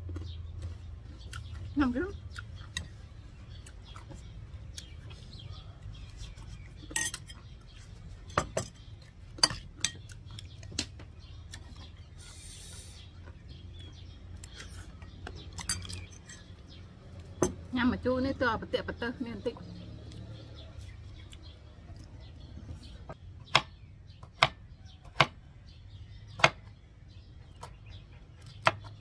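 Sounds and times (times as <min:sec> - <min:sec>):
metal spoon clinking a dish: 0:06.9 - 0:07.4.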